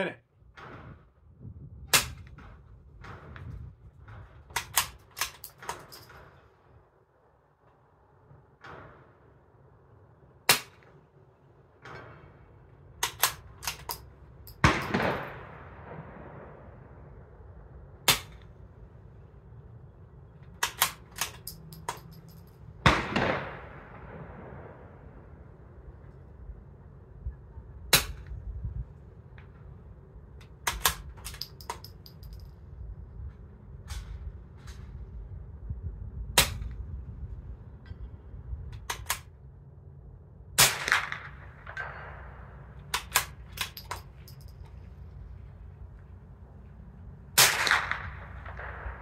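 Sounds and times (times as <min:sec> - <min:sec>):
muted rifle shot: 0:14.6 - 0:15.5, 0:22.8 - 0:24.2, 0:40.6 - 0:43.8, 0:47.4 - 0:49.0.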